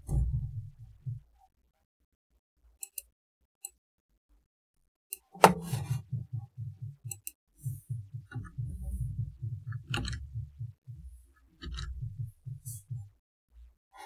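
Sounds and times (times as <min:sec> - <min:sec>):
keyboard typing thumps: 0:05.4 - 0:13.2.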